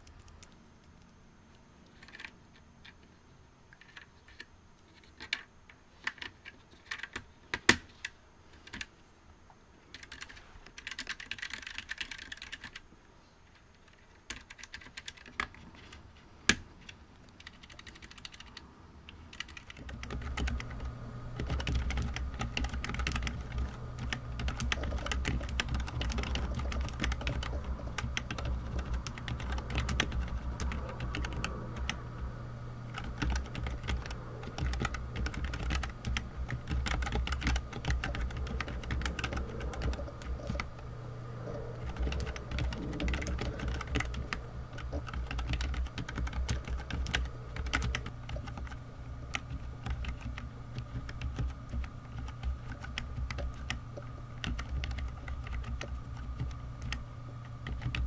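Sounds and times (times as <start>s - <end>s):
keyboard typing clicks: 9.9s - 12.8s, 16.8s - 32.2s, 32.9s - 53.8s, 54.4s - 58.0s.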